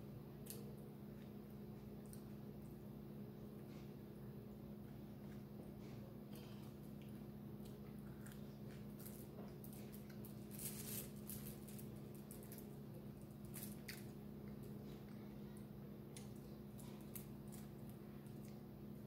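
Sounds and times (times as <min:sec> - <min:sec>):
steady low hum: 0:00.0 - 0:19.0
fingers picking at food on foil: 0:07.6 - 0:14.7.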